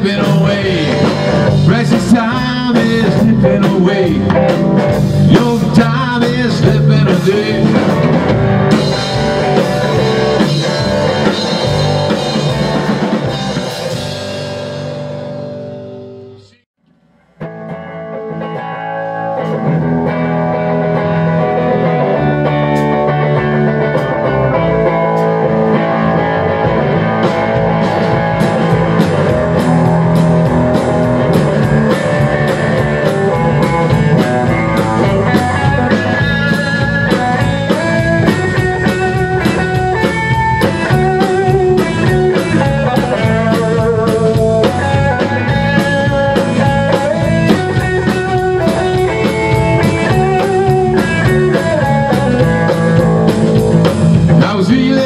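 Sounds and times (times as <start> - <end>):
drum kit: 0.0 - 55.0
electric guitars: 0.0 - 55.0.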